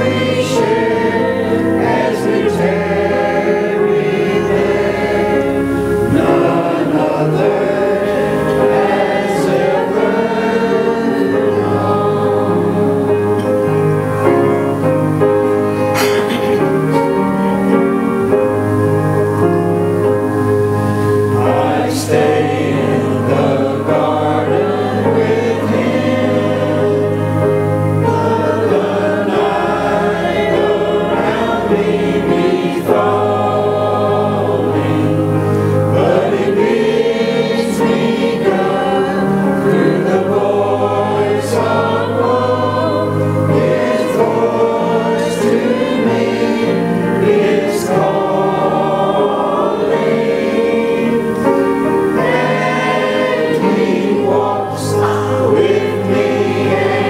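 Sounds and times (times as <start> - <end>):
mixed choir singing a hymn: 0.0 - 57.0.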